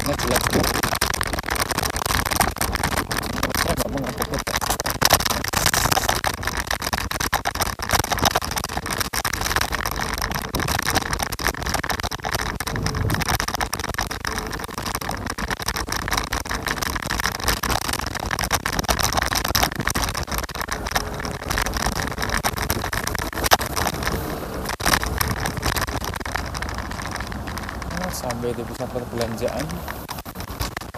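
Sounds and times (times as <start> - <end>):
small knocks and rattles: 0.0 - 30.9
road rumble: 19.5 - 30.9.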